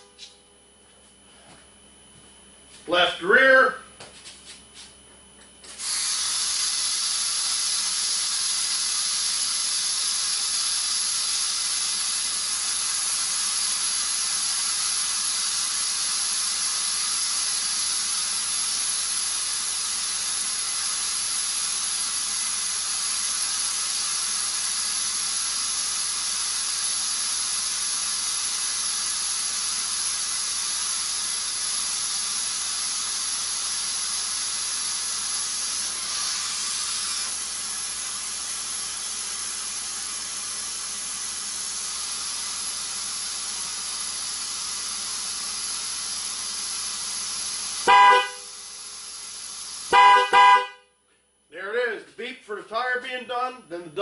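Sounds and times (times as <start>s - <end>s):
air hissing from tire valve: 5.6s - 50.8s.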